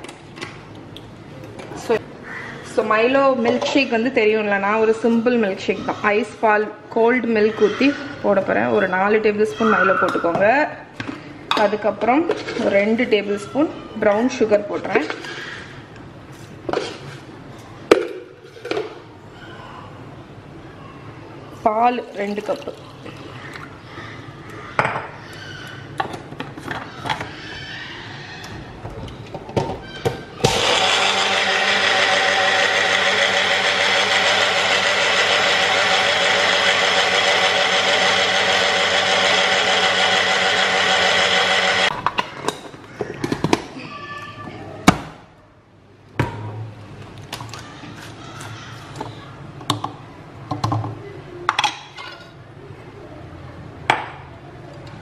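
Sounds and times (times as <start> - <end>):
blender running: 30.4 - 42.0.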